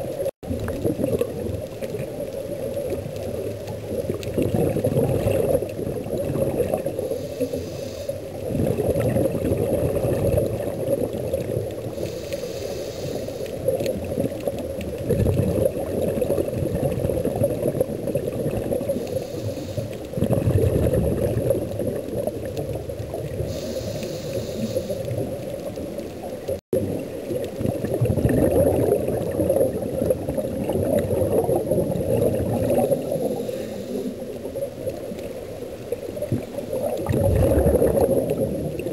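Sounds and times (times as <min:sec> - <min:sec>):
underwater bubbling gurgle: 0:00.0 - 0:38.9
regulator hiss: 0:07.0 - 0:08.3, 0:11.9 - 0:13.6, 0:19.0 - 0:20.0, 0:23.4 - 0:25.2.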